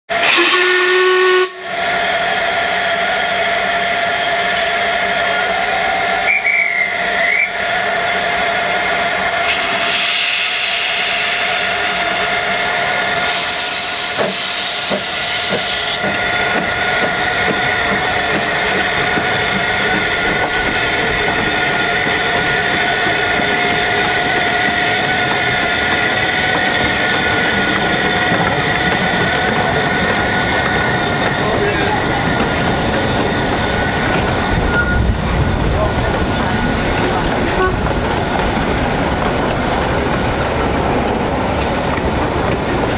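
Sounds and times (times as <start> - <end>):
steam locomotive whistle: 0.1 - 8.6, 9.4 - 12.4, 13.1 - 16.2, 37.5 - 37.9
steam hissing: 0.1 - 41.8.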